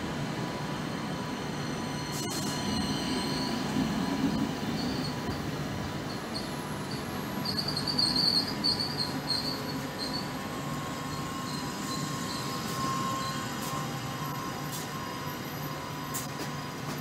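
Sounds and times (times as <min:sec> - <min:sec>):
train coaches rumbling: 0:00.0 - 0:17.0
high-pitched wheel squeals: 0:01.2 - 0:05.4, 0:06.1 - 0:16.2.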